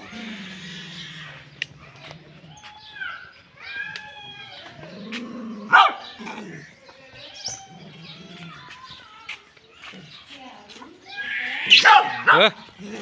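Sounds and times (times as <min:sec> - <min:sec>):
dog barking loudly: 0:05.7 - 0:06.2, 0:11.7 - 0:12.6.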